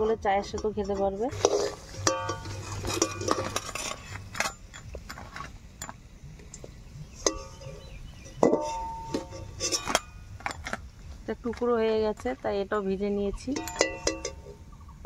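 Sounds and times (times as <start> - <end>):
metal spatula scraping a wok: 0.0 - 5.4, 7.1 - 10.7
ringing metallic clinks: 13.5 - 14.6.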